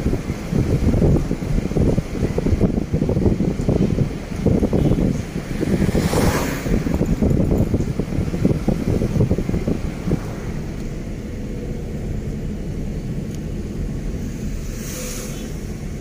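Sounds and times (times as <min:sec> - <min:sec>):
car road and engine rumble: 0:00.0 - 0:16.0
wind buffeting microphone: 0:00.0 - 0:16.0
brief hiss: 0:14.3 - 0:15.8.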